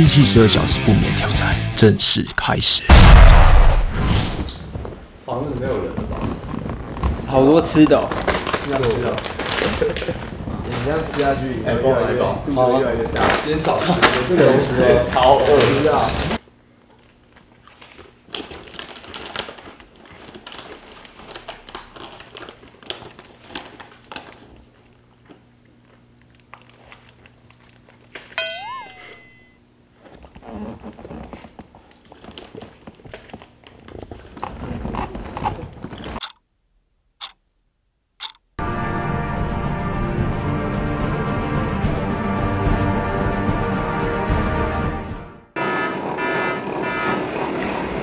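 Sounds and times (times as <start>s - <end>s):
packaging crinkling and rustling: 5.9s - 11.6s, 13.2s - 28.4s, 30.1s - 36.2s
sharp ticks: 36.2s - 36.4s, 37.2s - 37.4s, 38.2s - 38.5s.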